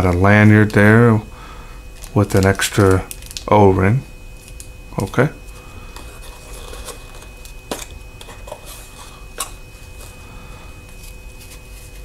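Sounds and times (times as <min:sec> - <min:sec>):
rustling of cardboard and fabric: 0:10.9 - 0:12.0.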